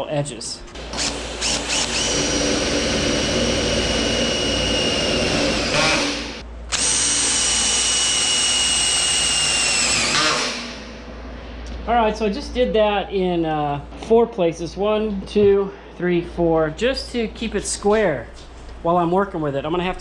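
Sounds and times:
cordless drill motor whining: 0:00.8 - 0:10.8.

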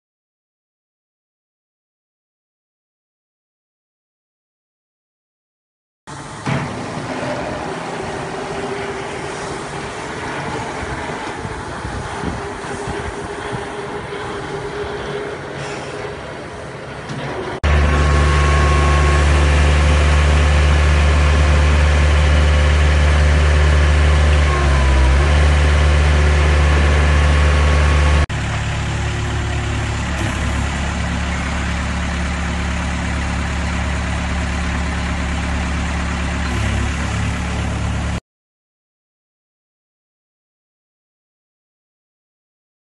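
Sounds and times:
drill engine running steadily: 0:06.1 - 0:38.2.

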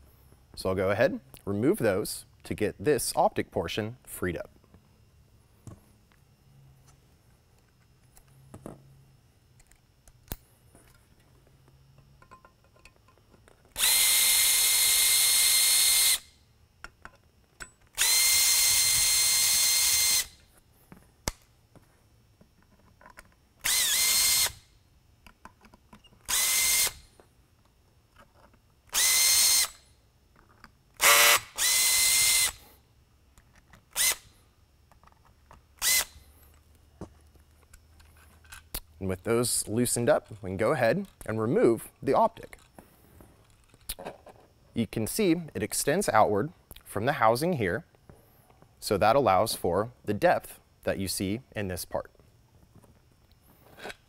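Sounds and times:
electric screwdriver whine: 0:13.7 - 0:16.4, 0:17.9 - 0:20.5, 0:23.6 - 0:24.7, 0:26.2 - 0:27.1, 0:28.9 - 0:29.8, 0:31.0 - 0:32.7, 0:33.9 - 0:34.4, 0:35.8 - 0:36.3.

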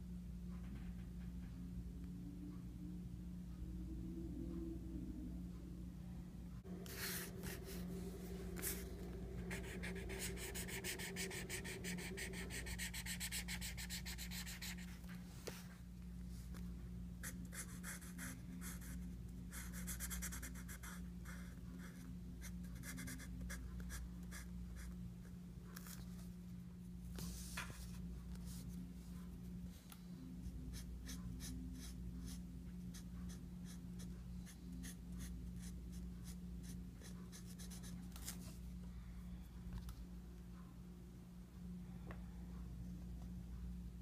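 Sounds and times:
low hum: 0:00.0 - 0:20.5.

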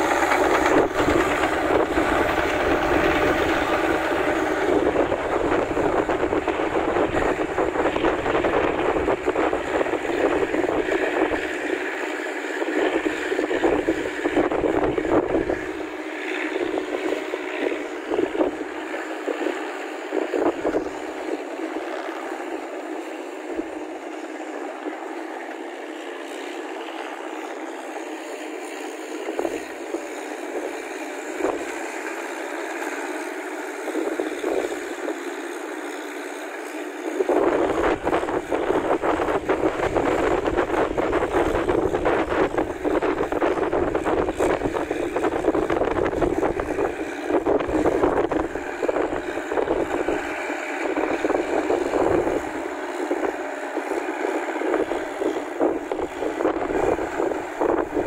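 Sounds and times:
wind on microphone: 0:00.0 - 0:22.2, 0:29.2 - 0:31.8, 0:37.1 - 0:58.0
tractor engine running: 0:00.0 - 0:58.0.

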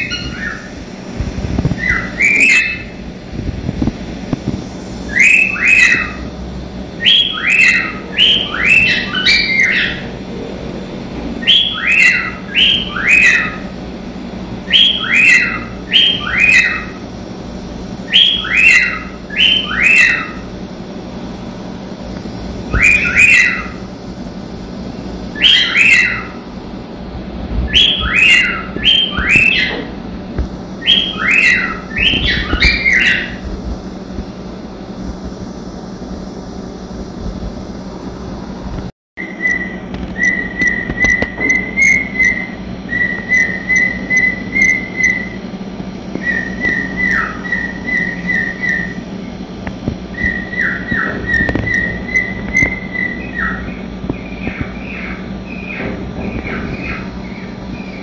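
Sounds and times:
cockatiels whistling: 0:00.0 - 0:00.7, 0:01.8 - 0:03.0, 0:05.1 - 0:06.3, 0:07.0 - 0:10.1, 0:11.4 - 0:13.7, 0:14.7 - 0:17.0, 0:18.1 - 0:20.5, 0:22.7 - 0:23.8, 0:25.3 - 0:26.4, 0:27.7 - 0:29.9, 0:30.8 - 0:33.4, 0:39.2 - 0:45.4, 0:46.2 - 0:49.0, 0:50.1 - 0:58.0
steady low hum: 0:00.0 - 0:58.0.

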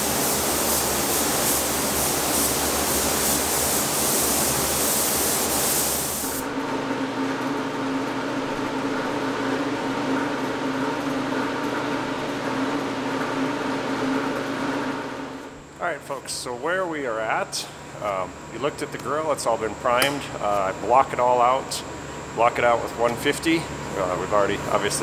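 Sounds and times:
paint spray gun hissing: 0:00.0 - 0:06.4
machine hum: 0:00.0 - 0:25.0.

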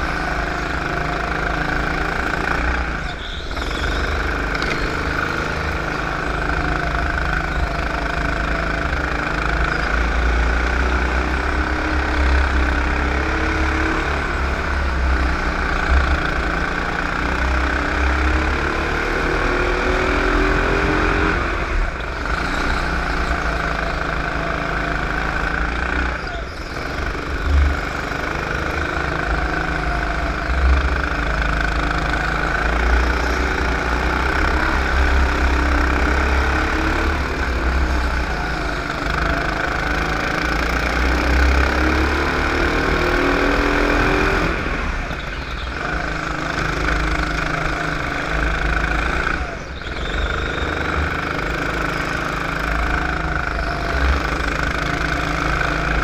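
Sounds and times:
go-kart engine running hard: 0:00.0 - 0:56.0.

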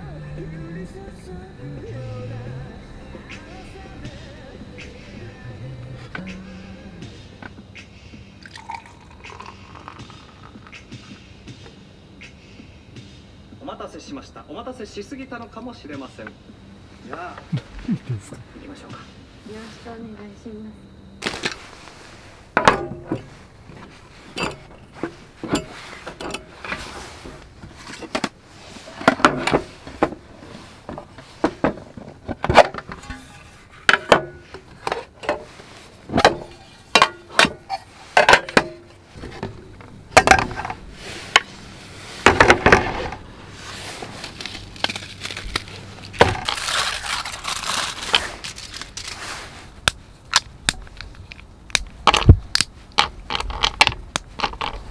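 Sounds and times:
rustling: 0:21.2 - 0:54.9.

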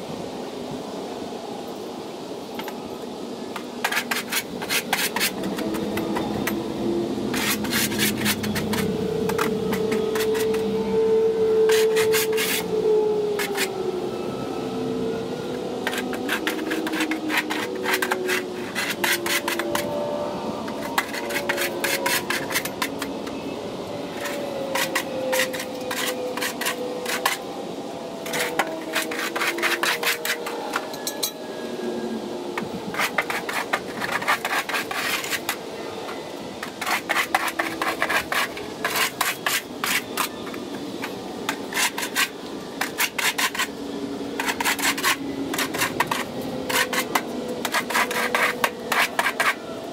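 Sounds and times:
shovel scraping concrete floor: 0:03.8 - 0:06.5, 0:07.3 - 0:10.6, 0:11.7 - 0:12.7, 0:15.8 - 0:20.0, 0:20.7 - 0:23.1, 0:24.2 - 0:27.4, 0:28.3 - 0:31.4, 0:32.9 - 0:35.6, 0:36.6 - 0:43.8, 0:44.4 - 0:49.6.

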